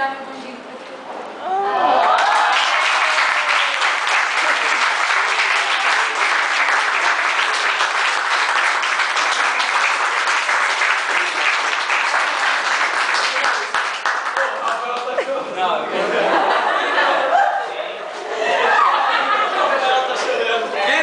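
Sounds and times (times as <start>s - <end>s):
students applauding: 1.9s - 15.4s.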